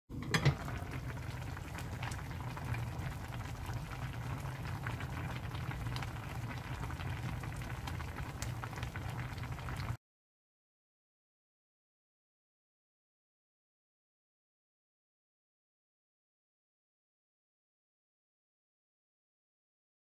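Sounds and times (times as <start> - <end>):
stew bubbling at a boil: 0.1 - 10.0.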